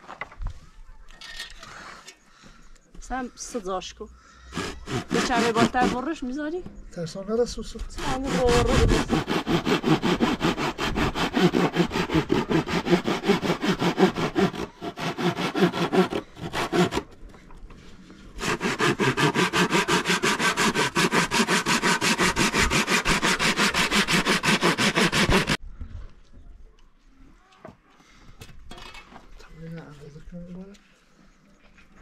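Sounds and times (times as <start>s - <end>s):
hand saw cutting wood: 4.5s - 6.2s, 7.9s - 17.1s, 18.4s - 25.6s.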